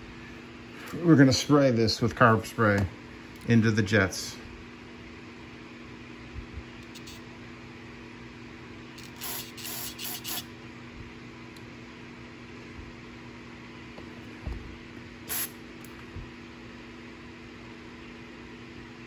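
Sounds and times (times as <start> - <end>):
steady low hum: 0.0 - 19.0
aerosol spray hissing spurts: 9.0 - 10.5, 15.3 - 15.6.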